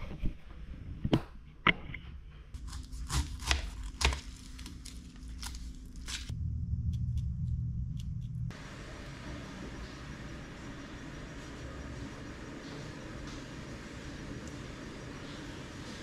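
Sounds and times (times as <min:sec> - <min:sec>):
low steady hum: 0:00.0 - 0:16.0
knife cutting pineapple: 0:02.6 - 0:06.3.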